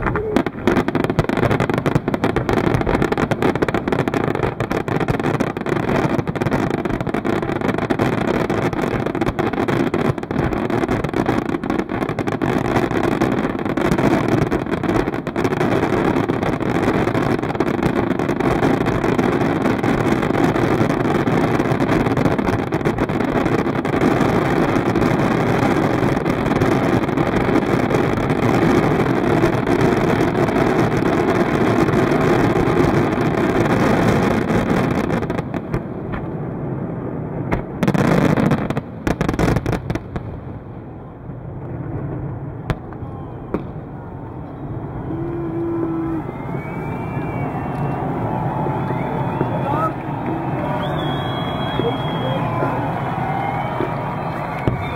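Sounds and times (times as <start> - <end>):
fireworks bangs and crackles: 0.0 - 54.9.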